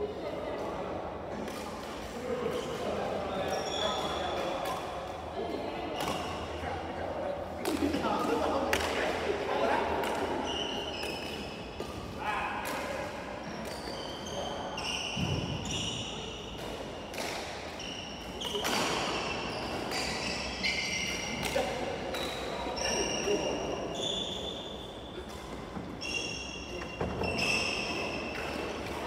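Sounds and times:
shoes squeaking on wooden floor: 25.8s - 28.3s.

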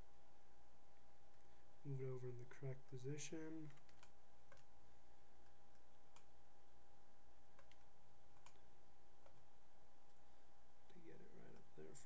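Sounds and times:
faint steady hum: 0.0s - 12.0s
computer mouse clicks: 3.6s - 4.7s, 5.4s - 6.3s, 7.5s - 8.6s, 9.2s - 10.2s.

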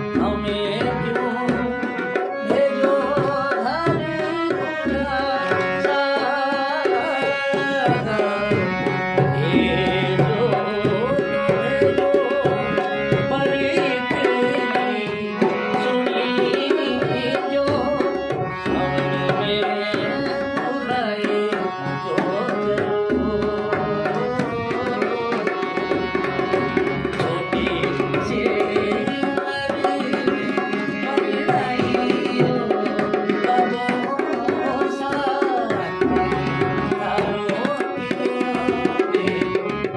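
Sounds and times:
hand drum rhythm: 0.0s - 39.9s
harmonium chords: 0.0s - 39.9s
man singing folk song: 2.4s - 25.6s.

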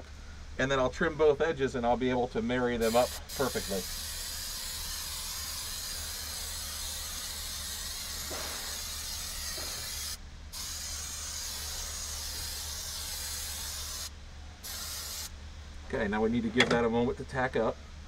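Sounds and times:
aerosol can spraying: 2.8s - 15.3s.

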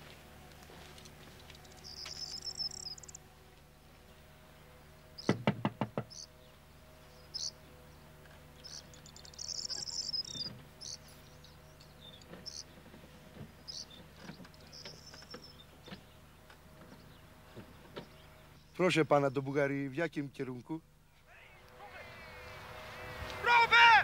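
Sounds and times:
insects chirping: 1.0s - 3.3s, 5.0s - 5.4s, 6.0s - 6.4s, 7.0s - 12.8s, 13.5s - 15.7s
sharp knocks: 5.2s - 6.2s.

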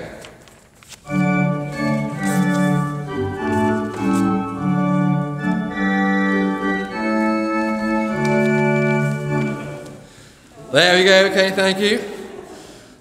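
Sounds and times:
organ playing sustained chords: 1.0s - 10.2s.

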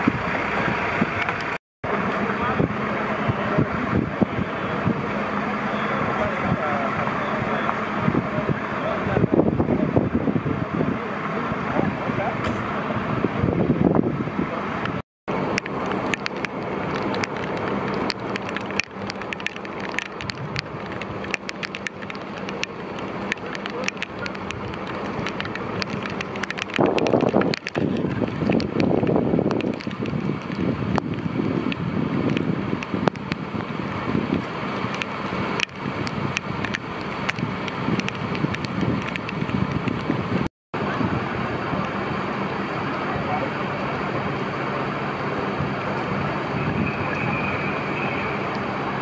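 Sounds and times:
fire engine idling: 0.0s - 39.7s, 40.8s - 49.0s
sharp clicks and clinks: 15.5s - 31.3s.

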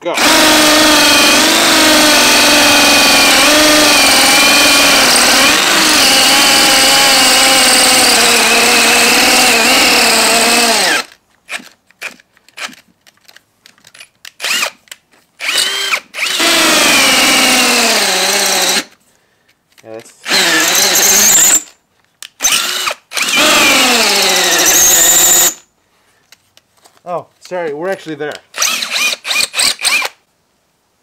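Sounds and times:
hammer drill boring into concrete: 0.0s - 12.8s, 14.4s - 14.8s, 15.4s - 19.0s, 20.2s - 21.8s, 22.4s - 25.7s, 28.5s - 30.2s.

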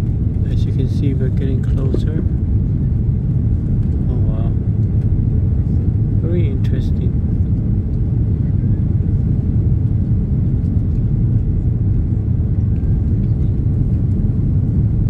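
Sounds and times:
airliner cabin engine rumble: 0.0s - 15.0s.

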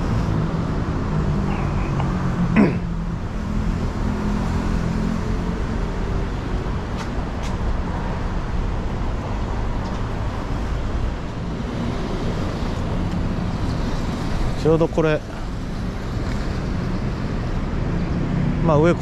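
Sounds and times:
car engines passing: 0.0s - 19.0s.

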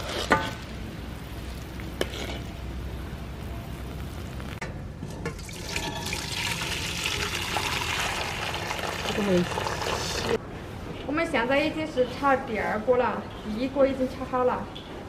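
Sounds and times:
thick syrup pouring into pot: 5.3s - 10.4s.

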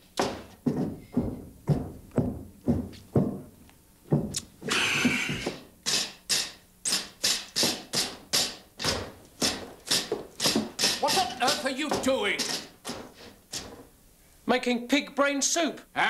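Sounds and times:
rod pounding into bucket: 5.3s - 13.8s.

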